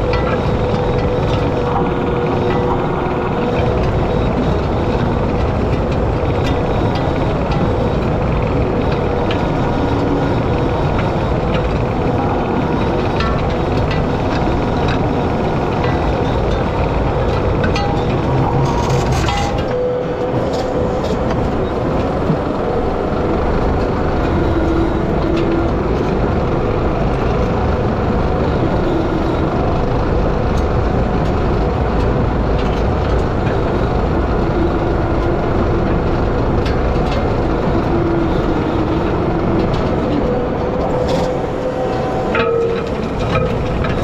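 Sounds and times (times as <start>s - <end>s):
faint wavering whine: 0.0s - 44.0s
skid steer running under load: 0.0s - 44.0s.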